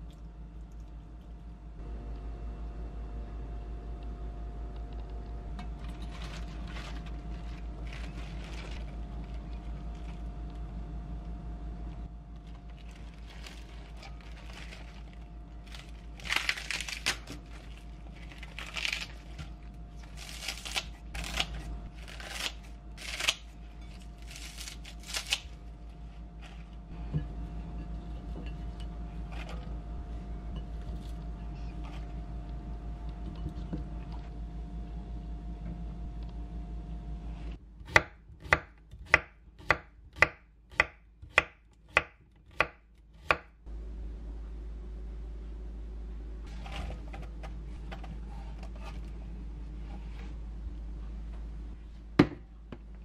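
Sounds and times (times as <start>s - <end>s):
low hum: 0.0s - 39.5s, 42.2s - 53.0s
cabbage leaves rustling: 5.8s - 10.2s, 12.7s - 25.7s.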